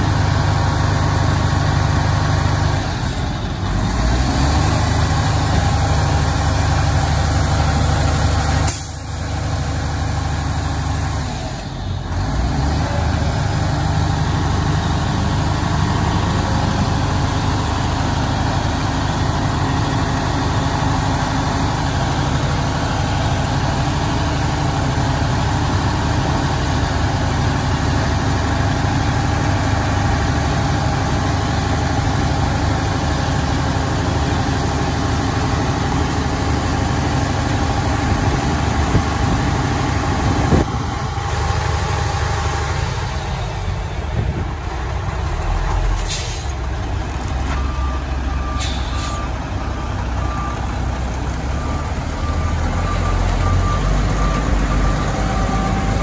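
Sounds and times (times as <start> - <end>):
truck diesel engine running: 0.0 - 56.0.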